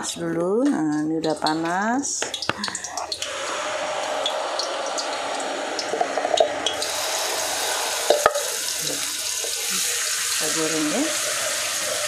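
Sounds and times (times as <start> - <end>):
paste sizzling in hot oil: 2.6 - 12.0.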